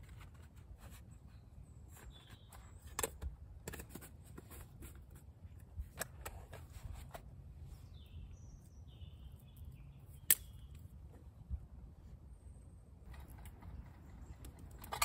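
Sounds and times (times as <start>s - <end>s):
bird calls: 1.3s - 3.0s
low outdoor rumble: 4.4s - 15.0s
twigs clicking and snapping: 9.5s - 10.9s
sharp snap: 10.2s - 10.8s.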